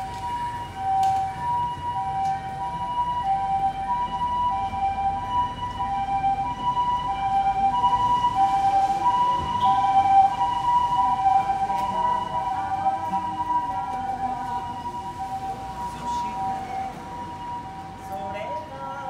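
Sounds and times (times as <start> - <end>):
two-tone ambulance siren: 0.0 - 19.0.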